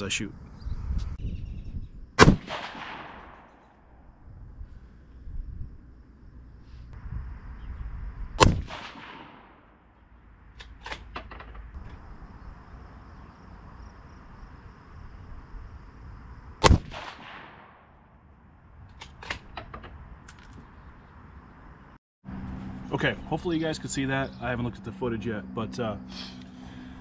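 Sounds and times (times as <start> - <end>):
rifle shots with echo: 2.2 - 3.9, 8.4 - 9.7, 16.6 - 17.9.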